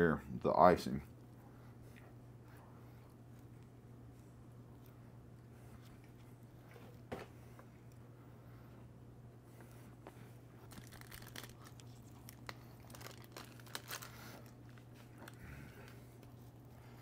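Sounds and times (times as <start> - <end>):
steady low hum: 0.0 - 17.0
plastic wrapper crinkling and tearing: 10.6 - 16.0
faint crackles and clicks: 10.6 - 16.4.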